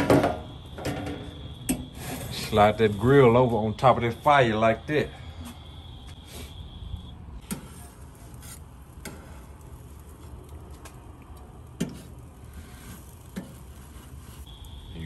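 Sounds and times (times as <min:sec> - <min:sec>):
charcoal fire crackling: 0:00.0 - 0:15.0.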